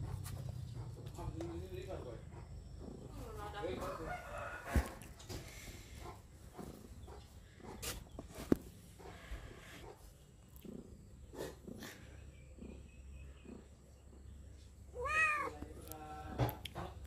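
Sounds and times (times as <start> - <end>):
cat meowing: 14.9 - 15.6.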